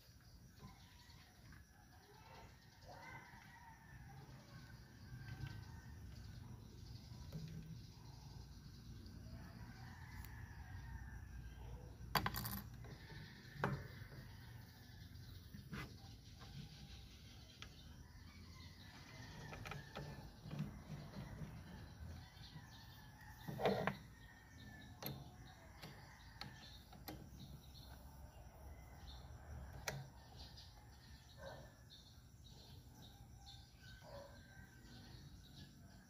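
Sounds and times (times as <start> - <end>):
birds chirping: 15.1 - 35.8
small clicks and knocks of tools: 23.3 - 28.1.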